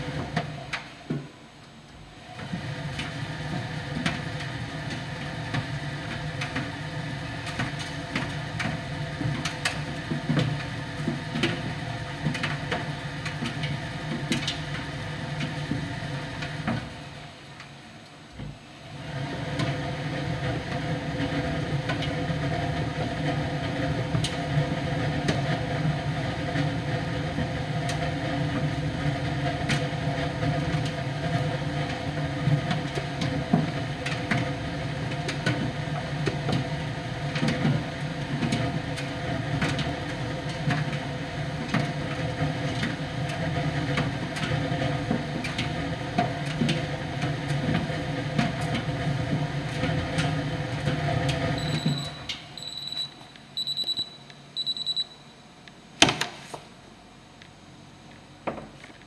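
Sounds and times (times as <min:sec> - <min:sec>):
tumble dryer running: 0:00.0 - 0:01.2, 0:02.1 - 0:17.5, 0:18.8 - 0:52.6
short high beeps: 0:51.6 - 0:55.2.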